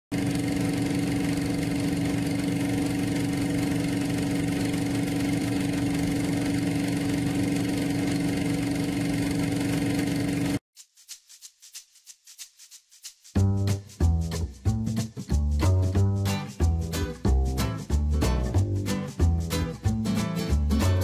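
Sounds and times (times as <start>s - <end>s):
film projector whirring: 0.1s - 10.6s.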